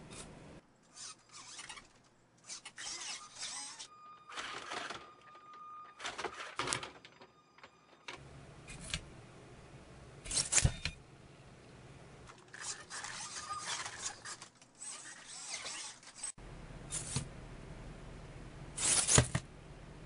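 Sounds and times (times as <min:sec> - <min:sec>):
servo motors whirring and clattering: 0:00.9 - 0:05.1, 0:10.2 - 0:11.0, 0:12.3 - 0:17.2.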